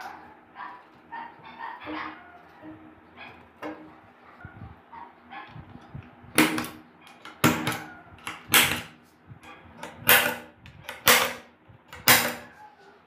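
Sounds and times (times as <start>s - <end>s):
center punch snapping on metal: 6.4s - 9.0s, 9.8s - 12.5s.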